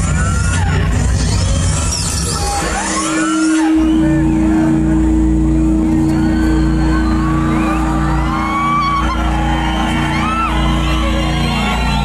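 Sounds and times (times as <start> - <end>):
crowd whooping and whistling: 0.0 - 12.0
loud music with pulsing bass: 0.0 - 12.0
low held drone: 2.5 - 12.0.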